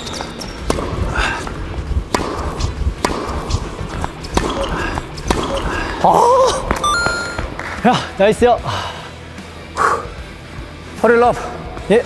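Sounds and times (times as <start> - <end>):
tennis ball bounces: 2.1 - 5.7
tennis racket strikes: 2.1 - 5.7.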